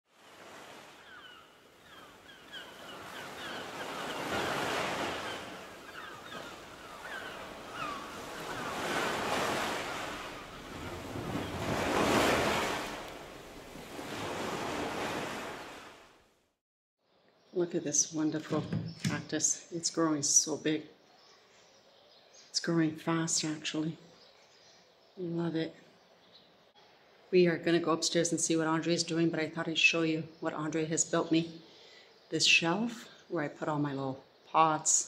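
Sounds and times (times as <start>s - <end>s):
waves breaking: 0.1s - 16.2s.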